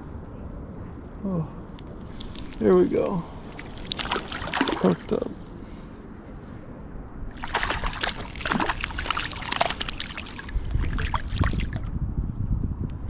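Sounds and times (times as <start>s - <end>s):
fish splashing in water: 3.5s - 5.2s, 7.3s - 11.9s.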